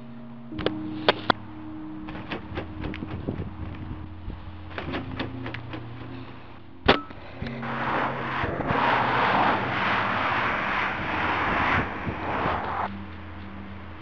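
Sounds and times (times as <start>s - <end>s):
cars passing with tyre hiss: 5.4s - 14.0s.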